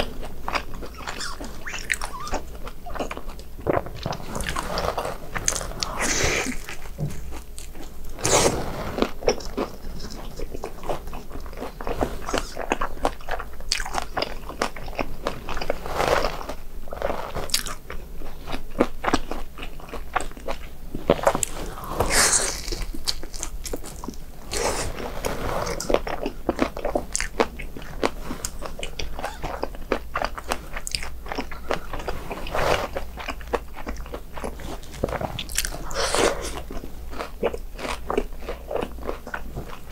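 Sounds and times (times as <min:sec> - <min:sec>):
person crunching crispy snack: 0:00.0 - 0:39.9.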